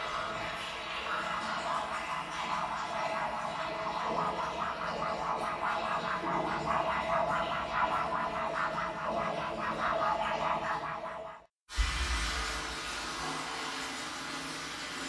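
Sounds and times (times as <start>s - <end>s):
scratchy pulsing texture: 0.1s - 11.5s.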